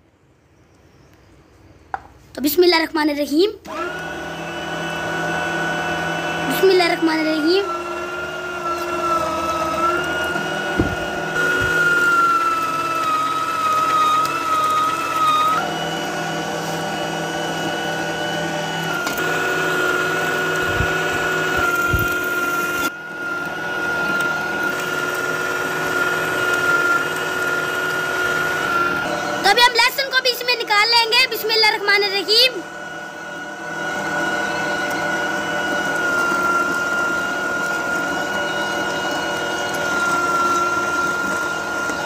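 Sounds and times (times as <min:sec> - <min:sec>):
electric meat mincer whining: 0:03.6 - 0:42.0.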